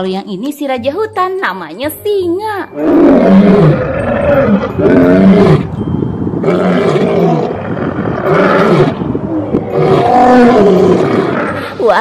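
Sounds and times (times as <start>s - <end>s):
lions roaring: 2.8s - 5.7s, 6.4s - 11.7s.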